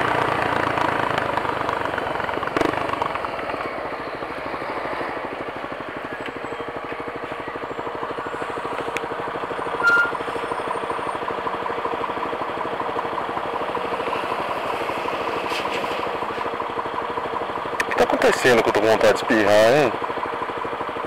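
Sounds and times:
motorcycle engine idling: 0.0s - 21.0s
traffic passing: 0.0s - 21.0s
brief high note: 9.8s - 10.2s.

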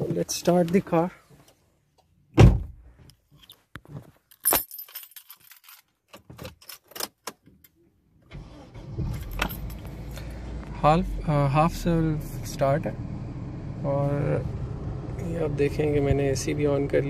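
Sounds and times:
heavy thump: 2.4s - 2.8s
car keys jangling in ignition: 4.3s - 7.3s, 8.4s - 10.2s.

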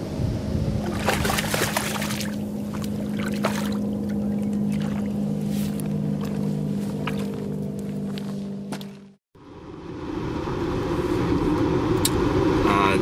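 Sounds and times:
low hum: 0.0s - 13.0s
fish splashing in water: 0.8s - 5.2s.

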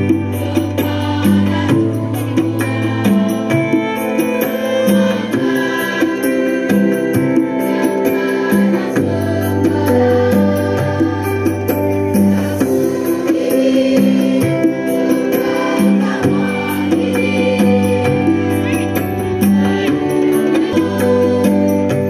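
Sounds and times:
choir singing long notes: 0.0s - 22.0s.

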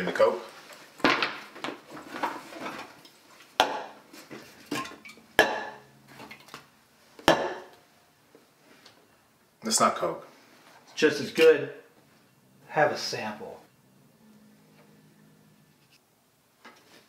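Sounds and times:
metal clanks and clatters: 4.5s - 6.6s.

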